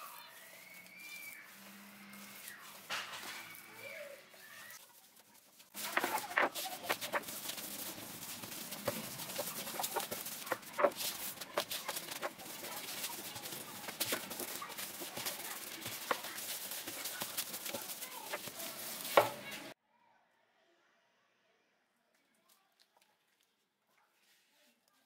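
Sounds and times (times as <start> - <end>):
rolling pin rolling dough: 5.7 - 19.8.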